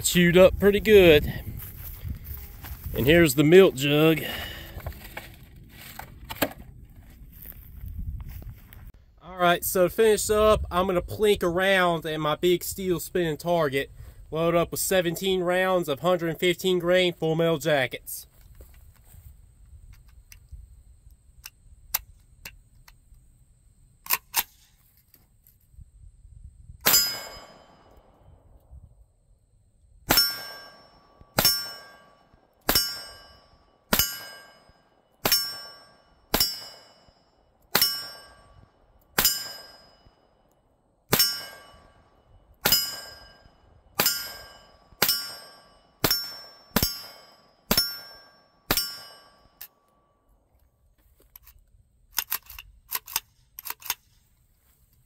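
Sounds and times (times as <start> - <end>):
steel target clanging: 26.8 - 28.0, 30.1 - 37.1, 37.7 - 38.6, 39.2 - 40.1, 41.1 - 49.6.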